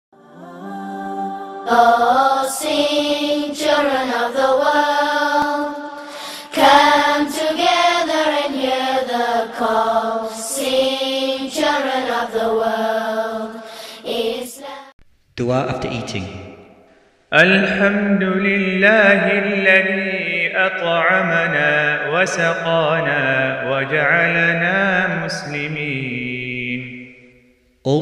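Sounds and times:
chant-like vocal singing: 0.1 - 14.9.

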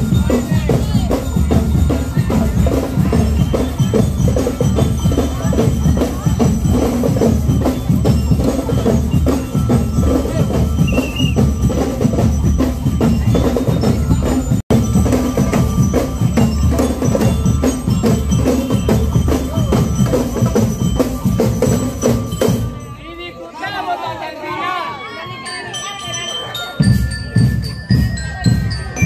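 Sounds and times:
marching band drums: 0.0 - 22.8.

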